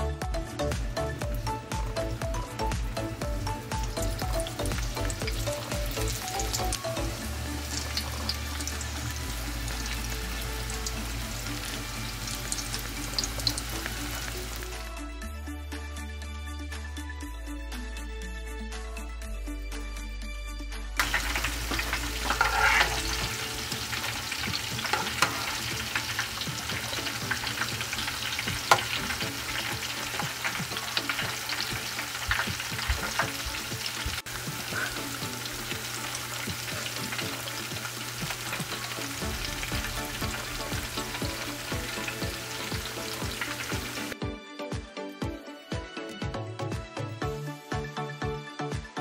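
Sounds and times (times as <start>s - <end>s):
background music: 0.0s - 49.0s
food deep-frying in hot oil: 1.1s - 14.9s, 21.0s - 44.2s
oil popping: 21.0s - 44.2s.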